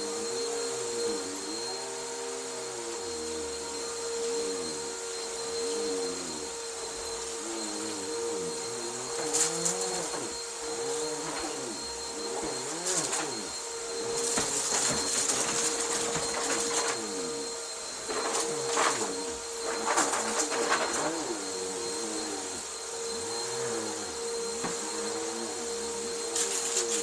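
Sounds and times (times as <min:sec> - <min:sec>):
vacuum cleaner whining: 0:00.0 - 0:27.0.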